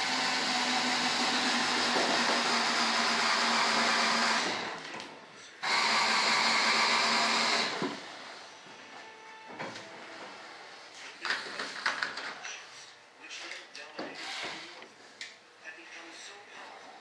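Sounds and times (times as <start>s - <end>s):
electric drill driving screws: 0.0s - 4.9s, 5.6s - 8.1s, 14.2s - 14.8s.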